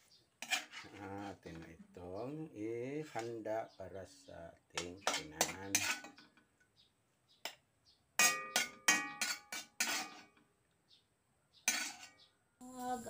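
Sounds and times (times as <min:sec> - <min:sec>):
metal spatula scraping a wok: 0:00.4 - 0:01.8, 0:04.8 - 0:06.3, 0:08.2 - 0:10.4, 0:11.7 - 0:12.2.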